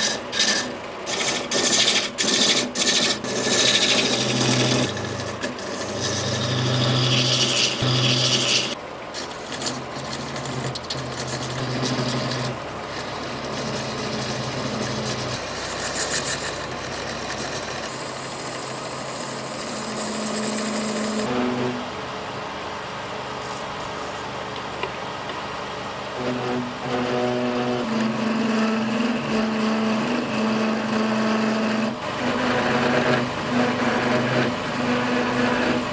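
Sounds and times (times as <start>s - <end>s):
turning tool scraping wood: 0.0s - 21.9s, 26.2s - 35.9s
wood lathe motor hum: 0.0s - 22.1s, 26.1s - 35.9s.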